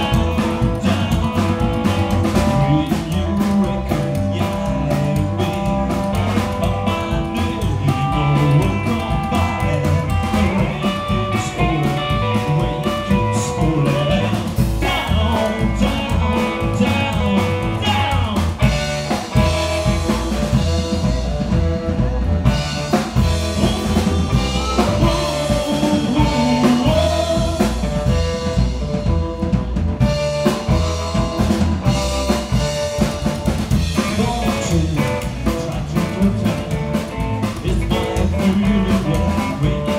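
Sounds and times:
drum kit: 0.0s - 39.9s
electric guitar: 0.0s - 39.9s
upright double bass: 0.0s - 39.9s
harmonica long held notes: 18.8s - 29.4s.

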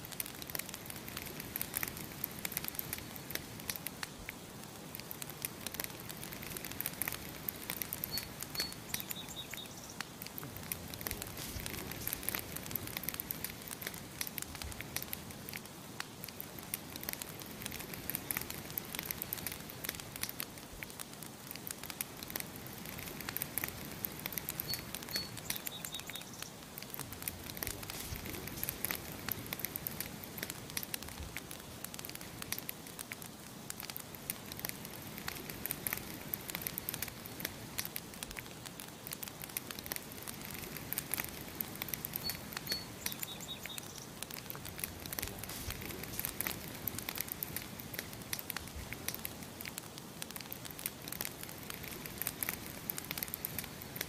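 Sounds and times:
campfire crackling and popping: 0.0s - 54.0s
small bird chirping: 7.8s - 10.2s, 24.4s - 26.6s, 42.0s - 44.2s.

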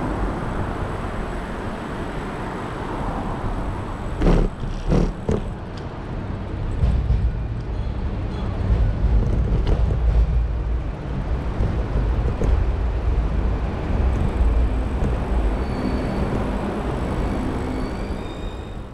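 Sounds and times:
city street rumble: 0.0s - 18.9s
faint high squeal: 15.4s - 18.9s.

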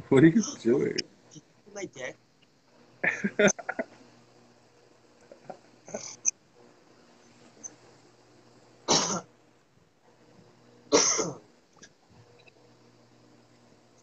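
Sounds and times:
person coughing: 8.9s - 9.3s, 10.9s - 11.4s.

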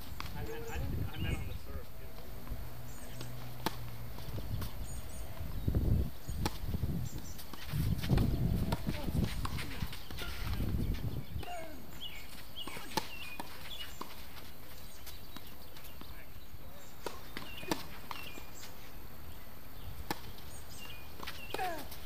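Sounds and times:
tennis balls struck by racquets: 2.0s - 16.2s, 16.8s - 22.0s
bird chirps: 10.0s - 22.0s.

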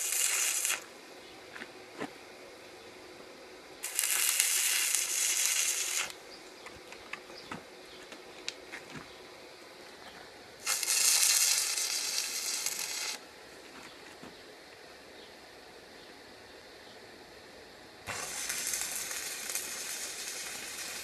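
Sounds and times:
welding arc crackling and sizzling: 0.0s - 0.9s, 3.8s - 7.2s, 10.0s - 13.2s, 18.0s - 21.0s.

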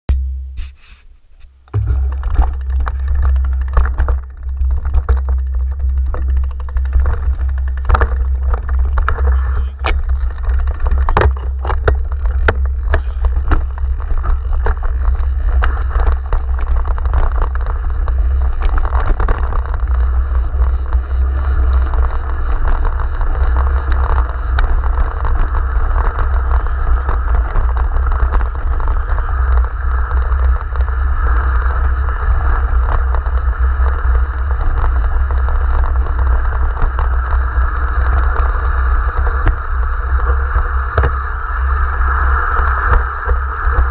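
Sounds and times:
bike clicking and rattling: 1.4s - 43.9s
wind buffeting microphone: 1.6s - 43.9s
tyres crunching on gravel: 1.7s - 31.4s.

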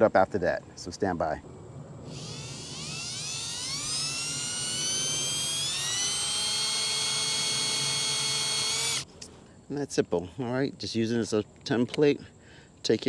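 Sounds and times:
cordless drill drilling sheet metal: 2.0s - 9.1s.

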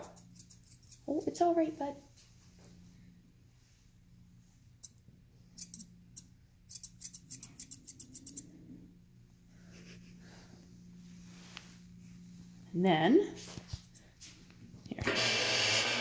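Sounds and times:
shears snipping hair: 0.0s - 1.6s, 5.6s - 8.4s.

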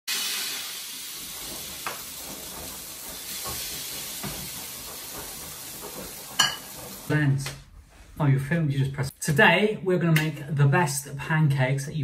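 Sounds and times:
batter sizzling in a wok: 0.1s - 7.1s.

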